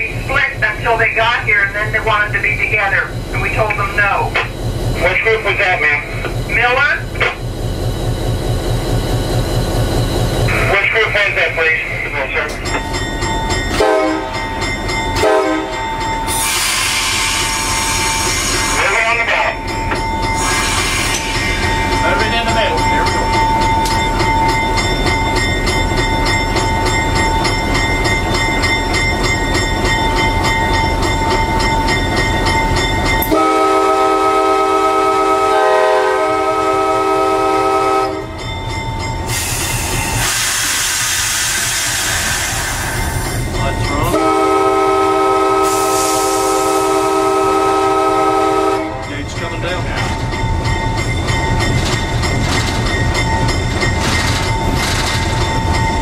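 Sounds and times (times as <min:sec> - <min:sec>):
diesel locomotive running: 0:00.0 - 0:56.0
train air horn blast: 0:13.8 - 0:14.4, 0:15.2 - 0:18.8, 0:33.3 - 0:38.3, 0:44.1 - 0:49.1.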